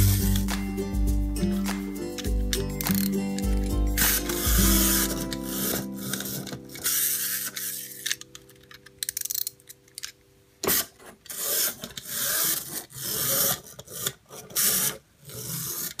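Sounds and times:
clockwork toy running: 11.3s - 16.0s.

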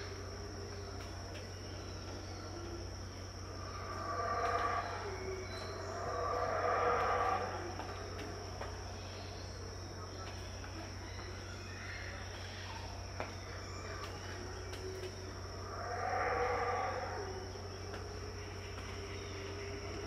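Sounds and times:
high-pitched insect drone: 0.0s - 20.0s
howler monkeys roaring: 2.0s - 9.4s, 14.2s - 20.0s.

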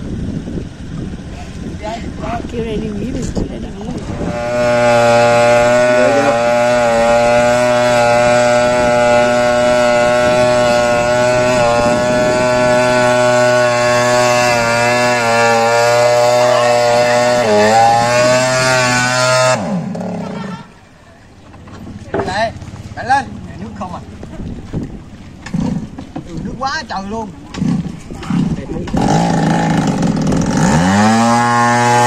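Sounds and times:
small petrol engine running: 4.0s - 20.6s, 27.5s - 32.0s.

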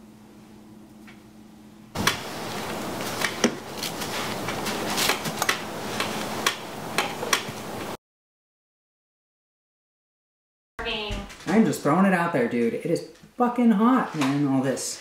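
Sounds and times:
low room hum: 0.0s - 8.0s
broom sweeping tile: 2.6s - 6.3s.

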